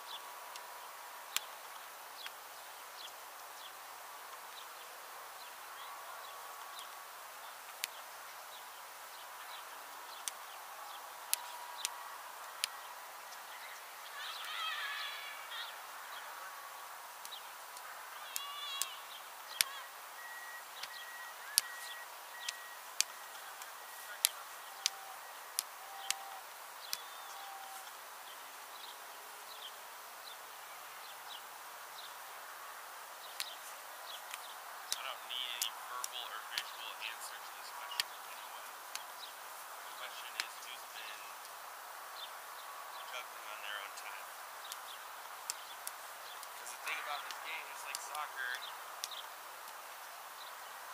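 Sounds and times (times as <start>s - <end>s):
steady hiss: 0.0s - 50.9s
faint bird chirps: 4.5s - 32.2s
warbling bird call: 9.4s - 29.0s.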